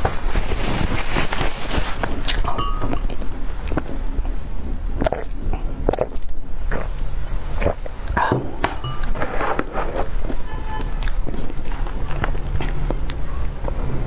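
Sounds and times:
mouth eating sounds: 0.0 - 14.0
sipping and swallowing: 0.6 - 13.9
spoon working into cake: 2.4 - 3.2.

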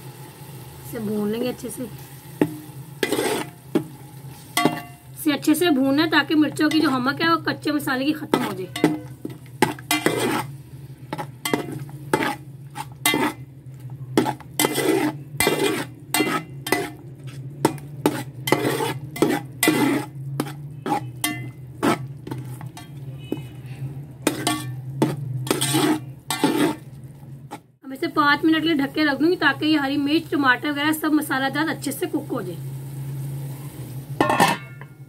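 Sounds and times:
faint sizzle: 0.0 - 35.0
metal spoon scraping a pot: 2.4 - 27.6, 34.2 - 35.0.

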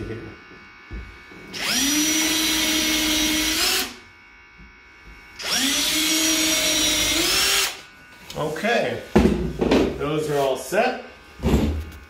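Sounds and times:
cordless drill whining: 1.5 - 4.0, 5.4 - 7.9.

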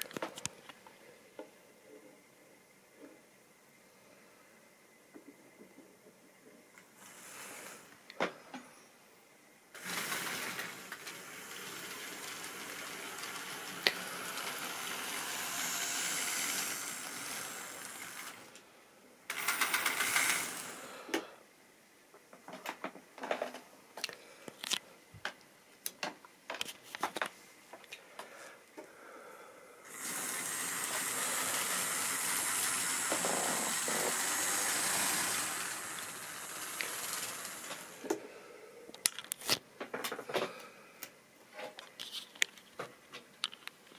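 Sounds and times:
wheels clicking over rail joints: 9.8 - 18.4, 30.0 - 38.1
model train whirring: 9.8 - 18.7, 19.3 - 21.0, 29.8 - 38.2.

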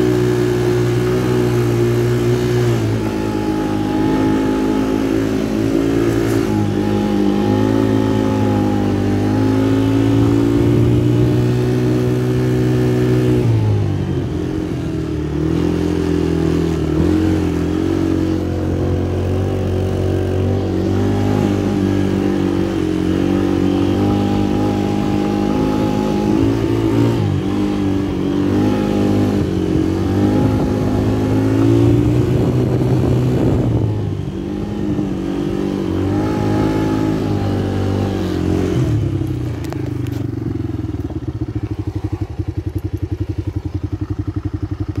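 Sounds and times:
quad bike engine revving: 0.0 - 45.0.

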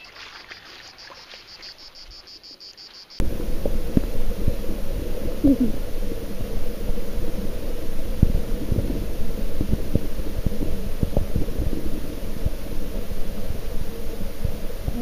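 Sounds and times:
insects chirping: 0.0 - 15.0
muffled underwater rumble: 3.2 - 15.0
steady hum: 3.2 - 15.0.

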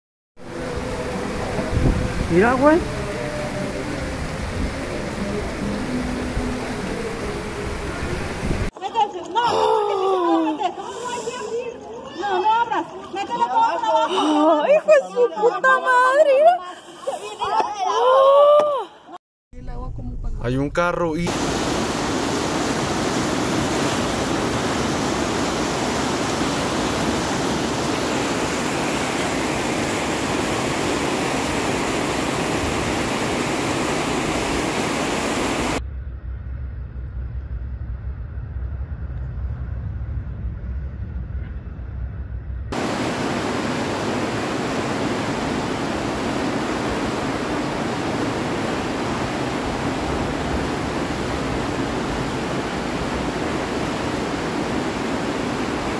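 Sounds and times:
floodwater rushing: 0.4 - 8.7, 21.3 - 35.8, 42.8 - 55.9
low rumble: 35.8 - 42.8.

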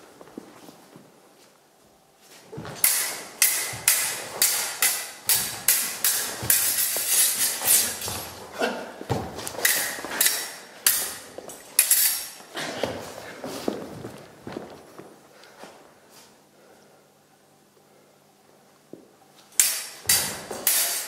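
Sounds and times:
metal swords clashing: 2.6 - 8.7, 9.4 - 12.5, 19.6 - 21.0
footsteps on wooden floor: 5.2 - 10.2, 12.4 - 15.8.

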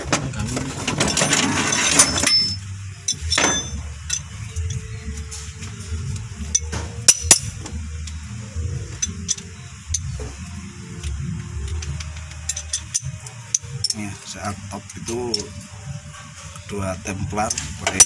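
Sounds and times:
scraping rattle: 0.0 - 4.8
spanners clinking on metal: 0.5 - 4.9, 6.2 - 8.3, 8.9 - 10.4, 11.0 - 15.7, 16.7 - 18.0.

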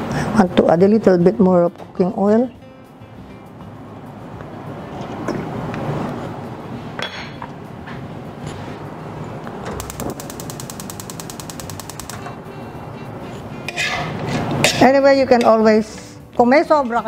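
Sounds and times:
fast rattle of clicks: 9.8 - 12.3.

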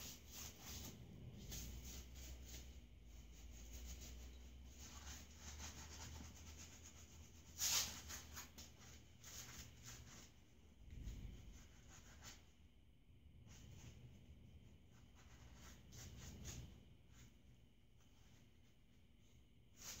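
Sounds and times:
sharp brush scrape: 0.0 - 10.4
sponge brush strokes: 0.0 - 12.6.

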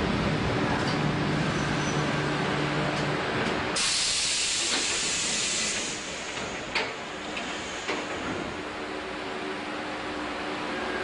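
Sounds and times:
air brakes hissing: 3.8 - 6.8, 7.4 - 8.2.

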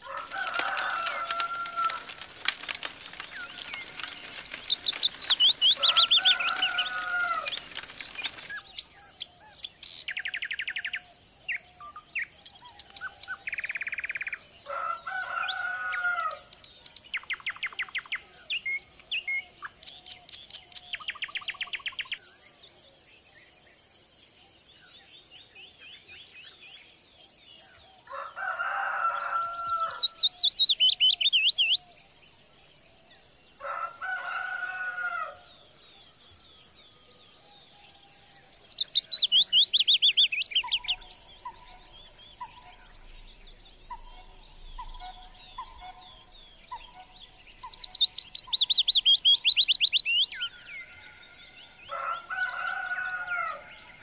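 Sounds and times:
rooster crowing: 0.0 - 8.4, 14.7 - 16.5, 28.1 - 30.2, 33.6 - 35.5, 50.9 - 54.0
songbirds chirping: 0.0 - 54.0.

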